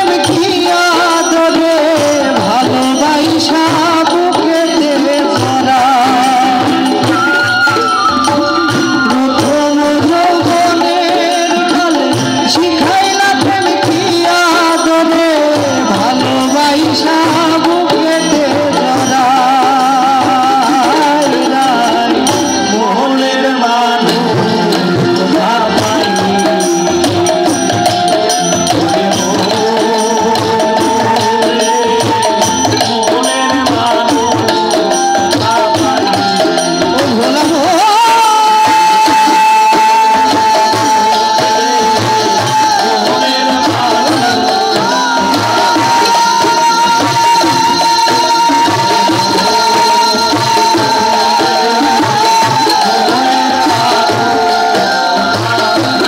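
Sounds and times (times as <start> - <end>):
drums keeping steady rhythm: 0.0 - 56.0
live band through loudspeaker: 0.0 - 56.0.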